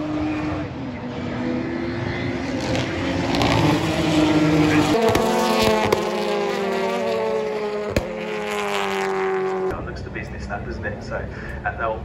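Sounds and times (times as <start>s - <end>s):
racing car engines: 0.0s - 12.0s.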